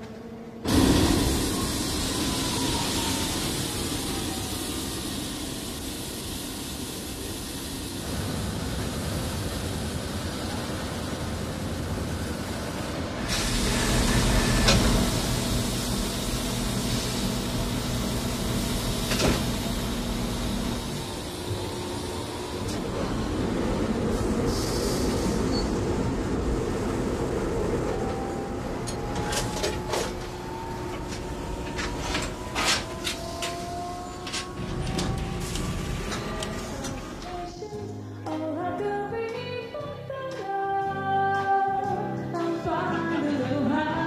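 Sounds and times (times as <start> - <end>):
machinery noise with hiss: 0.6 - 37.8.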